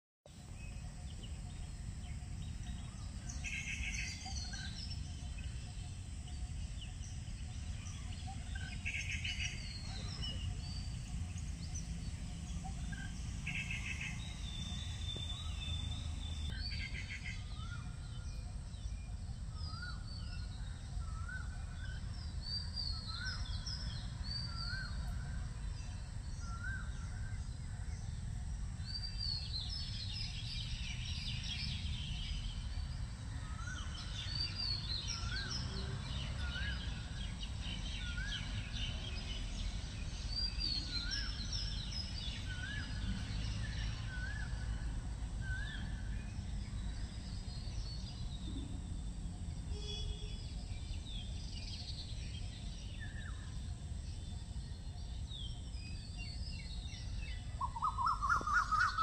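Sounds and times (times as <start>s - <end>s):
birds calling: 0.4s - 18.5s, 49.7s - 59.0s.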